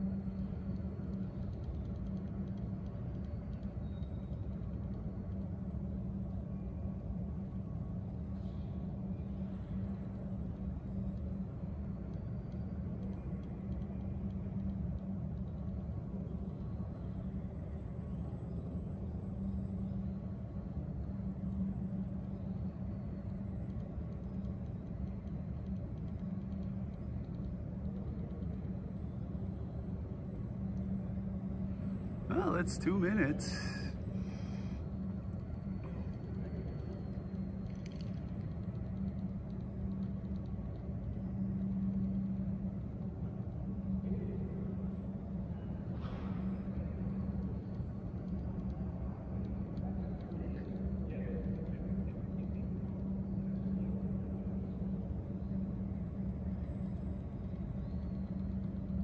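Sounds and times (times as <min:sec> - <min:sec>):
constant low tone: 0:00.0 - 0:59.0
low hall room rumble: 0:00.0 - 0:59.0
hall background rumble: 0:26.6 - 0:36.4.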